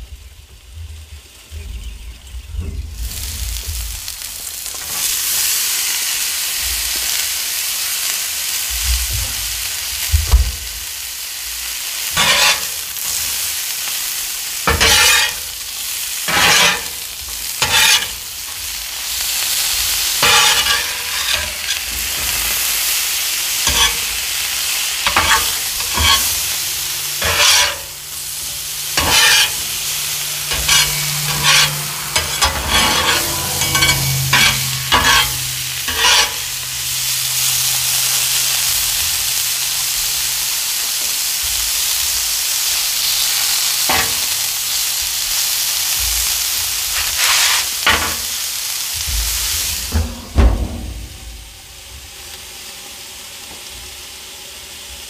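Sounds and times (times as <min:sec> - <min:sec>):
vegetables sizzling on a griddle: 0:00.0 - 0:55.0
metal spatula scraping steel: 0:12.1 - 0:13.4, 0:14.6 - 0:15.6, 0:16.3 - 0:37.7, 0:43.9 - 0:44.4, 0:46.9 - 0:48.4.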